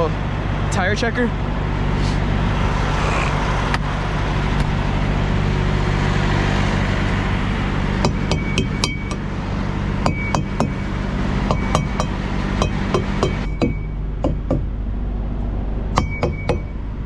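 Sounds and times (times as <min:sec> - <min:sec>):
diesel engine idling: 0:00.0 - 0:17.0
tire thumper knocking on tires: 0:08.0 - 0:09.3, 0:10.0 - 0:14.7, 0:15.9 - 0:16.8.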